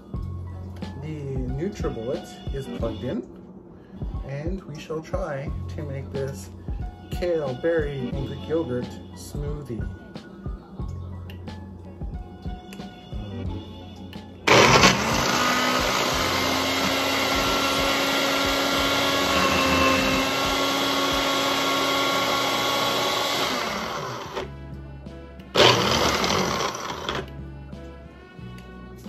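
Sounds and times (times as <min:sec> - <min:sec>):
blender motor running: 0:14.5 - 0:24.5, 0:25.5 - 0:27.3.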